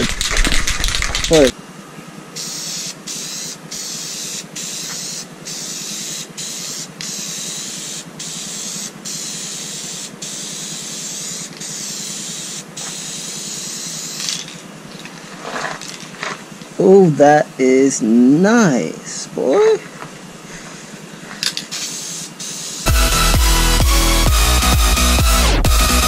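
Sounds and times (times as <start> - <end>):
aerosol can spraying: 2.4 - 14.6, 21.7 - 24.4.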